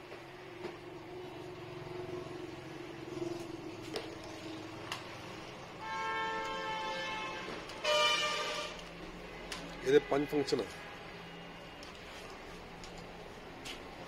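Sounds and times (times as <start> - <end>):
vehicle horn blaring: 5.8 - 8.9.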